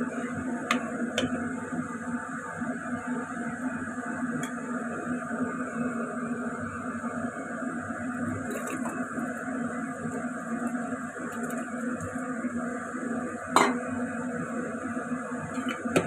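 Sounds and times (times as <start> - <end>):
metal bowl knocking on ceramic pot: 13.6 - 13.8.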